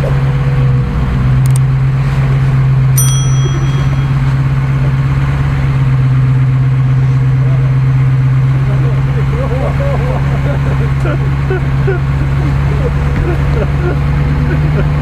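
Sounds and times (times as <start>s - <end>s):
truck engine running: 0.0s - 15.0s
high dings: 3.0s - 4.9s.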